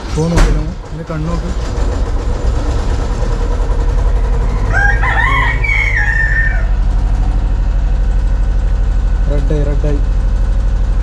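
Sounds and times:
engine running with pulsing hum: 0.0s - 11.0s
rooster crowing: 4.3s - 7.5s.

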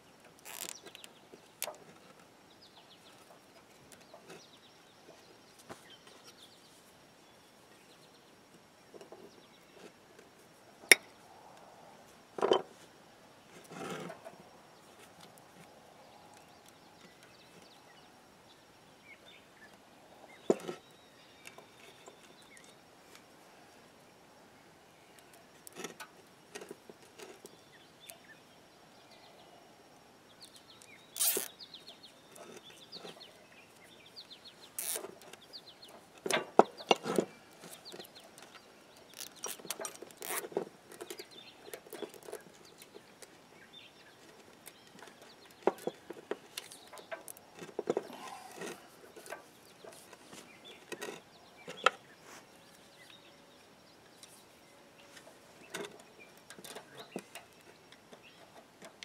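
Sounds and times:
clicks and rattles of cable and hook: 36.2s - 43.0s.

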